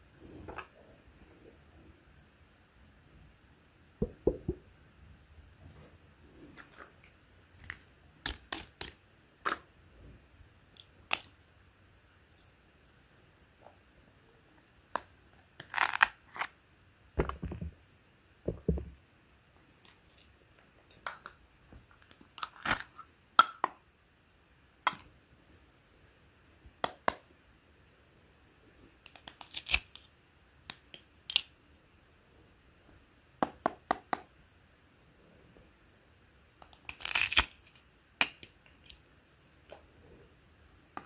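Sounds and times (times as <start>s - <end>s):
dull thumps: 17.2s - 17.8s, 18.5s - 19.0s
hook-and-loop ripping: 36.9s - 37.8s.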